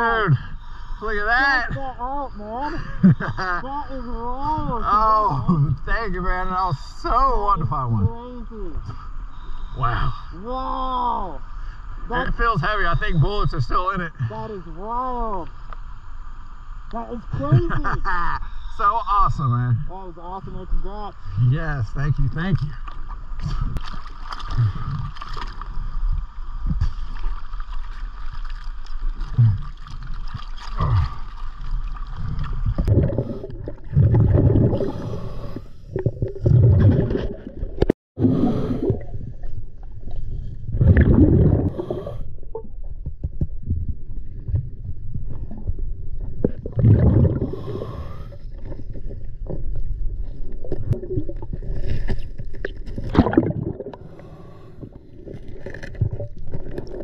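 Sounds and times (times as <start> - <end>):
regulator bubbles rumbling underwater: 22.5 - 57.0.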